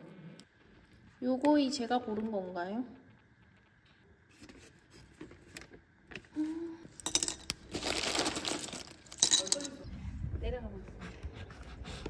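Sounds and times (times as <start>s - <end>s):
small hard objects clinking: 6.9s - 9.9s.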